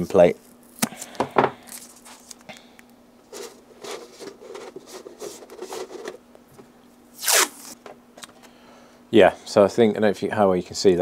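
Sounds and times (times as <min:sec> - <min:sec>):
tape rubbing and crinkling: 0:01.7 - 0:02.4, 0:03.3 - 0:06.2, 0:07.2 - 0:07.8
tape tearing: 0:07.2 - 0:07.8.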